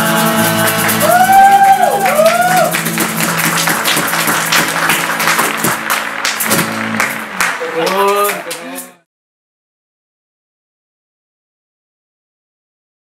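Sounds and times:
person singing: 0.0s - 2.7s
acoustic guitars ringing: 0.0s - 8.8s
clapping and whoops: 0.8s - 8.8s.

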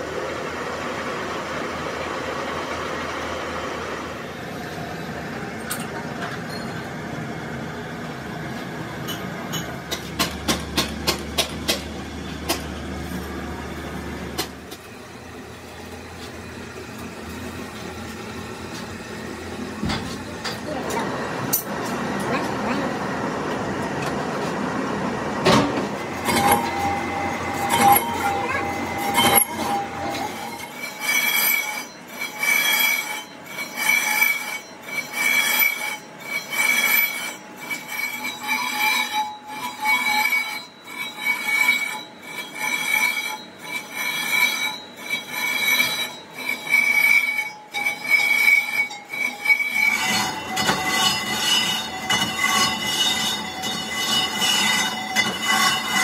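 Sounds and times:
metal-cutting squeal: 26.1s - 56.0s.

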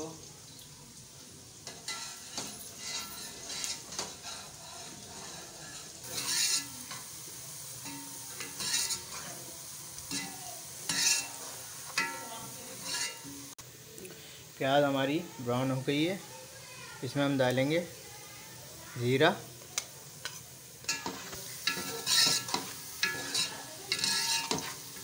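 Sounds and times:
onions sizzling in hot oil: 0.0s - 25.0s
ladle scraping and clinking on pot: 1.6s - 7.1s, 7.8s - 9.3s, 10.9s - 13.5s, 20.2s - 25.0s.

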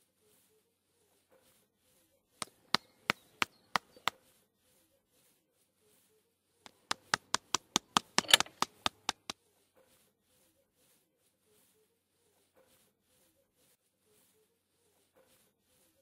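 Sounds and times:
sharp percussive clicks: 6.7s - 9.3s.

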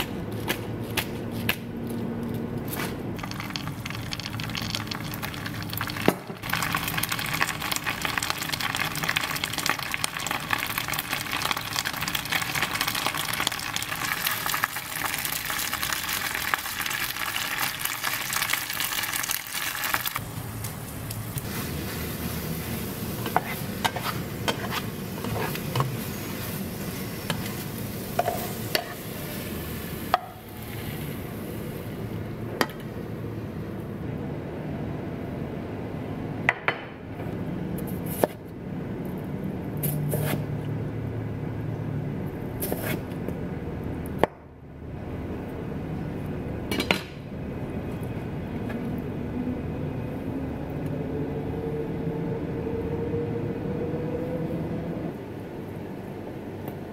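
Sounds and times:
garlic sizzling in frying pan: 3.2s - 31.8s
spatula clicking and scraping pan: 23.2s - 26.0s.

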